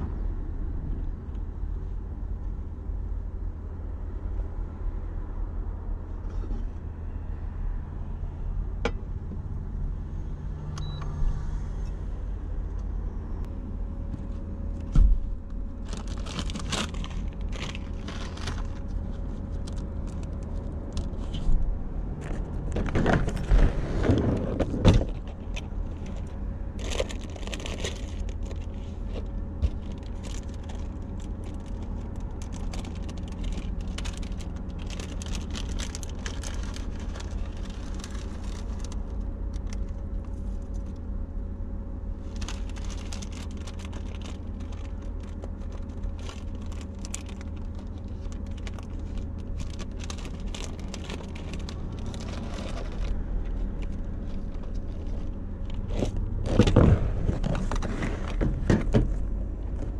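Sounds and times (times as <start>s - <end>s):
steady low hum: 0.0s - 59.9s
plastic packets rustling and clicking: 15.8s - 21.3s, 24.6s - 40.0s, 42.3s - 58.5s.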